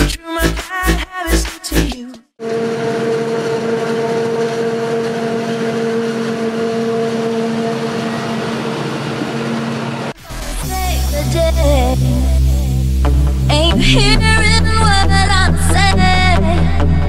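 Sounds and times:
forage harvester drone: 0:02.4 - 0:14.2.

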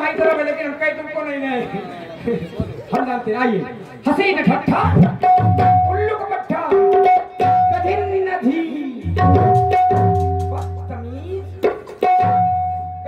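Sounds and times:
hand drum strokes: 0:09.1 - 0:11.0.

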